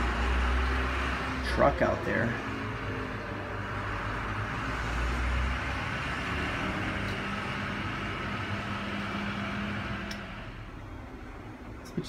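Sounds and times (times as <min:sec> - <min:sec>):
truck engine running: 0:00.0 - 0:12.0.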